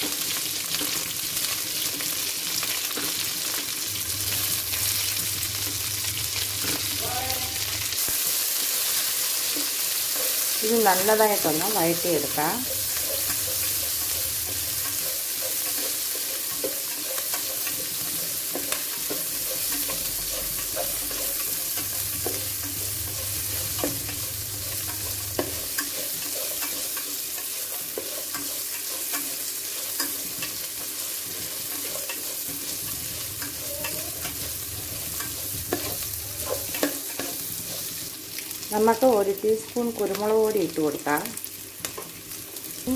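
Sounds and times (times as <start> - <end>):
onions sizzling in hot oil: 0.0 - 42.9
metal spoon scraping a pan: 6.1 - 38.2.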